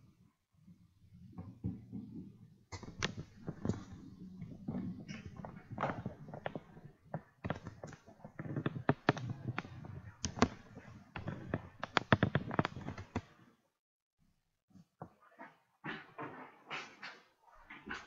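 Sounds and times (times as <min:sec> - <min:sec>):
handling taps and rustling: 0:01.4 - 0:13.4.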